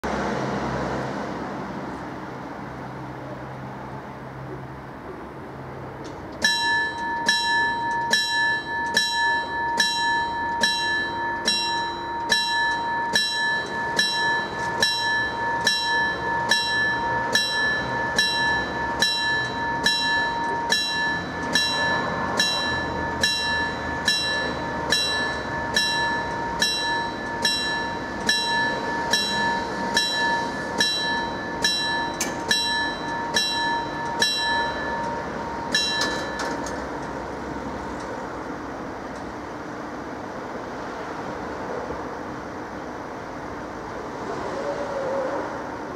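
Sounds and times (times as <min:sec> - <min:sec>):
level crossing warning bell ringing: 0:05.9 - 0:41.4.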